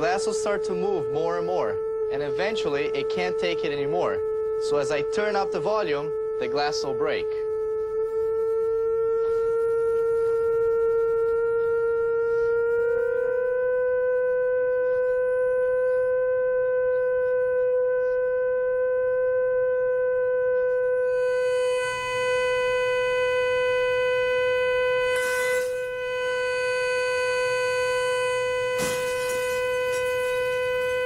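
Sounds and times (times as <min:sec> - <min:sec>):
loud steady loudspeaker tone: 0:00.0 - 0:13.8, 0:20.8 - 0:31.0
wine glass shattering: 0:28.8 - 0:30.5.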